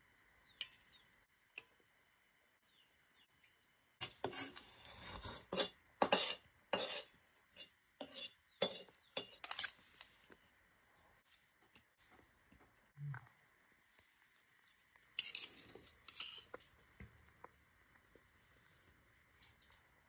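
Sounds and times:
metal utensil scraping a pan: 4.0s - 9.9s, 15.2s - 16.7s.

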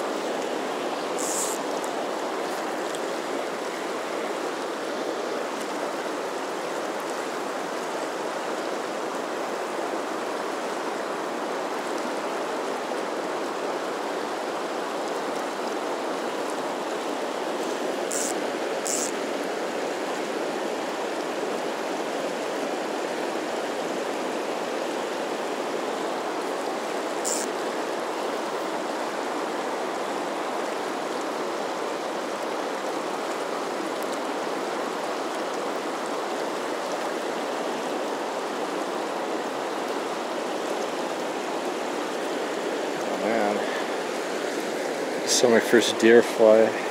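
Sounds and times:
river water rushing: 0.0s - 46.9s.

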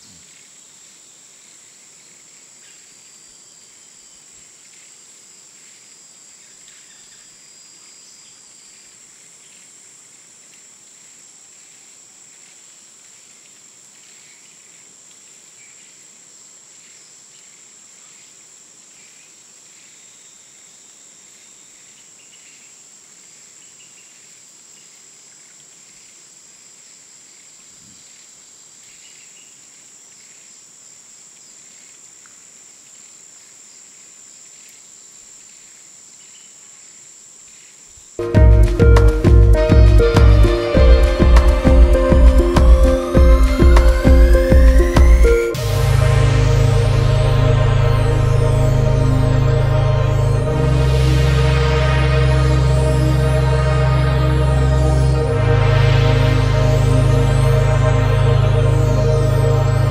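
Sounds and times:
insects trilling: 0.0s - 38.2s.

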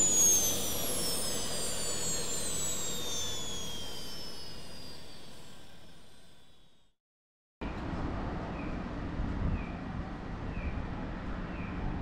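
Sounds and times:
whoosh with falling whines: 0.0s - 6.8s.

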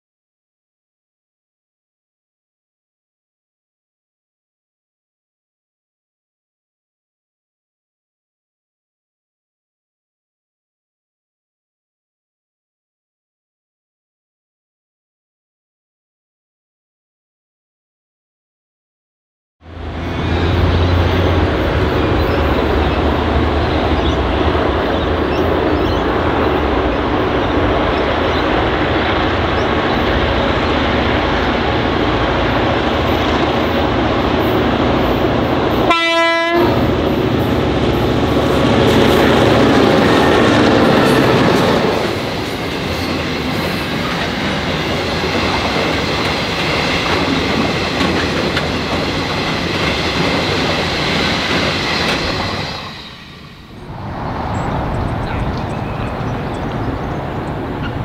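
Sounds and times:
diesel locomotive engines running: 19.6s - 58.0s
train horn blast: 35.7s - 37.2s
wagon wheels clacking over rail joints: 45.2s - 52.6s.

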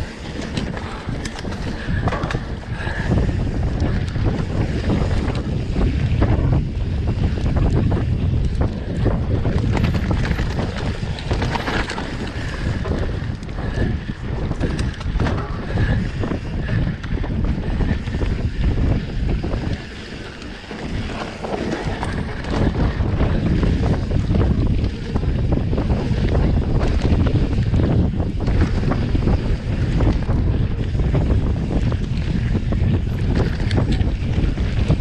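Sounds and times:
wind buffeting microphone: 0.0s - 35.0s
knocks and rattles: 9.4s - 13.0s.

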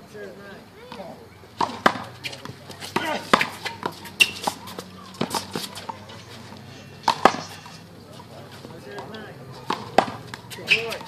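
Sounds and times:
players' voices: 0.0s - 11.0s
handball smacking: 1.6s - 6.0s, 7.1s - 7.6s, 9.7s - 11.0s.

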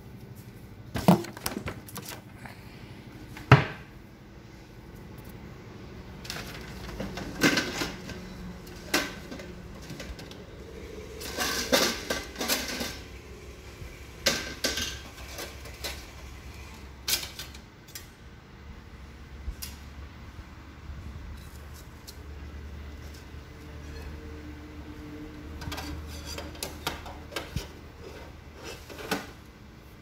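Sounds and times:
metal parts clinking and clattering: 11.2s - 13.1s, 17.0s - 18.1s.

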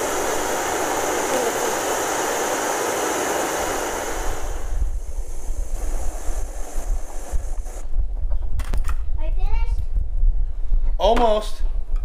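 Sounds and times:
gas stove hissing: 0.0s - 8.0s
wind rumbling on microphone: 0.0s - 11.0s.

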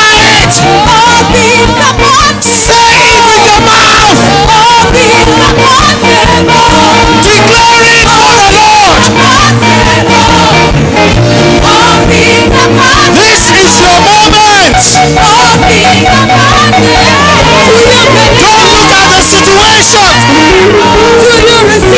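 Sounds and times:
band playing steady beat: 0.0s - 21.9s
congregation singing: 0.0s - 21.9s
person singing lead: 13.0s - 21.9s.

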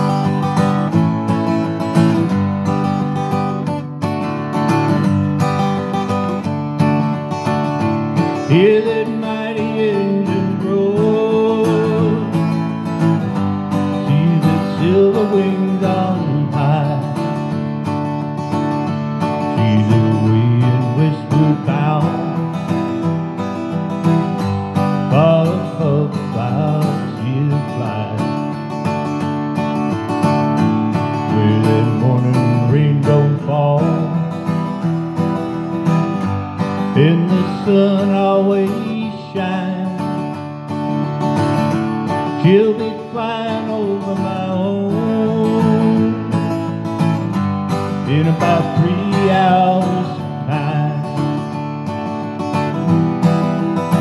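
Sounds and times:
acoustic guitar strumming: 0.0s - 54.0s
man singing: 8.2s - 17.8s, 19.2s - 28.8s, 30.9s - 35.3s, 36.6s - 41.0s, 42.0s - 51.6s.

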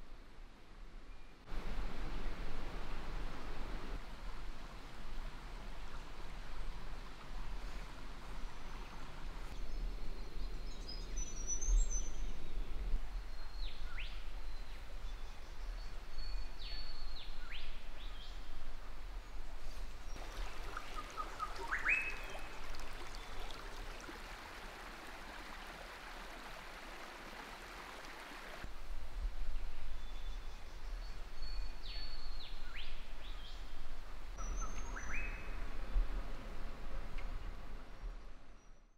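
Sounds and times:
creek rushing over rocks: 19.8s - 28.7s
birds calling: 20.1s - 23.6s, 34.4s - 35.6s.

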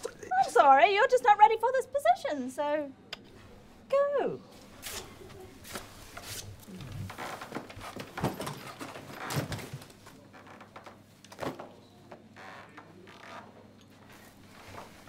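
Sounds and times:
briefcase and papers handled: 7.4s - 10.0s.

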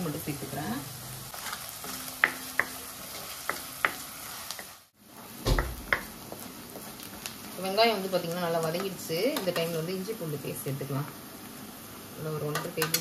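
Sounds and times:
onions sizzling in oil: 0.0s - 13.0s
wooden spatula tapping pan: 1.9s - 4.8s, 5.5s - 6.9s, 12.5s - 13.0s.

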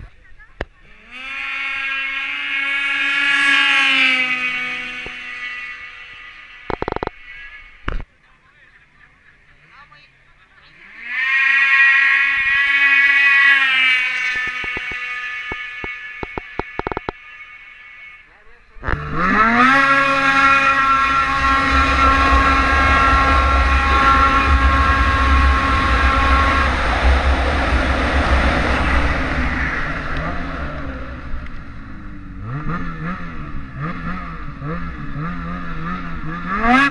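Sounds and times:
snowmobile engine revving: 0.0s - 36.9s.

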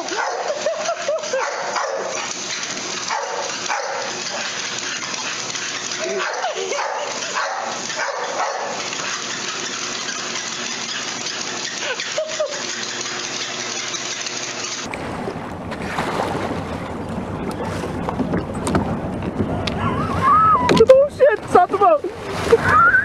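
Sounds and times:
treadmill whirring: 0.0s - 14.9s
wind and water from a boat: 14.8s - 23.0s.

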